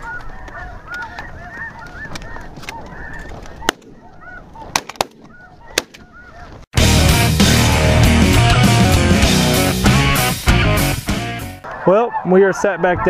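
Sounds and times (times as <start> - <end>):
geese honking: 0.0 - 6.7, 11.6 - 13.0
sharp cracks: 2.1 - 6.1.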